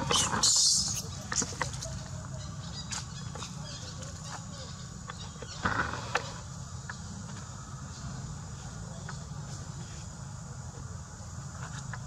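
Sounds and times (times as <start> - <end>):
macaque call: 0.0 - 5.8.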